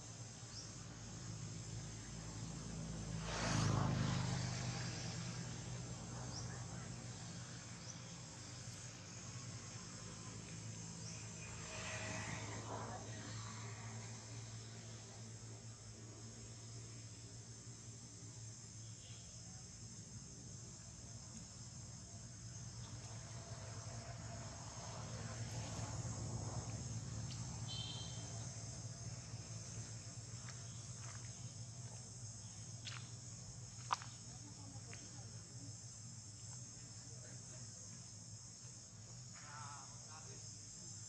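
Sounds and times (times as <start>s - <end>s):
insects buzzing: 0.0s - 41.0s
low hum: 9.9s - 17.1s.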